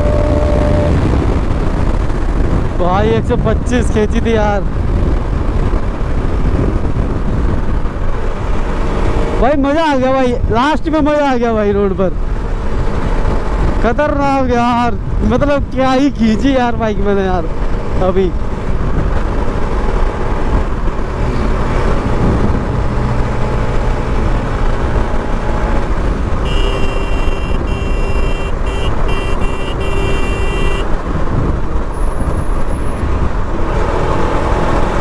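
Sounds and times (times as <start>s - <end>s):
motorcycle engine drone: 0.0s - 10.6s, 11.6s - 35.0s
wind and road noise: 0.0s - 35.0s
vehicle horn blasts: 26.4s - 30.9s.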